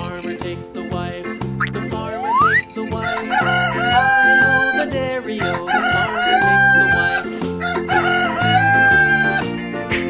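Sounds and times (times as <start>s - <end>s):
background music: 0.0s - 10.0s
rooster crowing: 3.0s - 4.9s, 5.7s - 9.4s.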